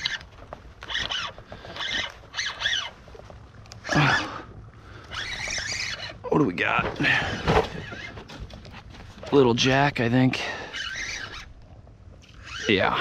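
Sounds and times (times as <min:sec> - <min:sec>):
fishing reel drag buzzing: 0:00.8 - 0:02.9, 0:05.0 - 0:06.2, 0:10.5 - 0:11.5, 0:12.2 - 0:13.0.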